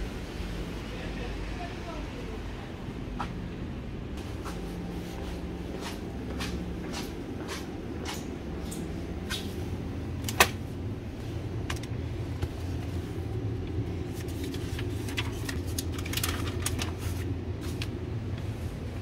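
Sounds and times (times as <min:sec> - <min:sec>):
steady low rumble: 0:00.0 - 0:19.0
newspaper pages rustling: 0:14.0 - 0:18.0.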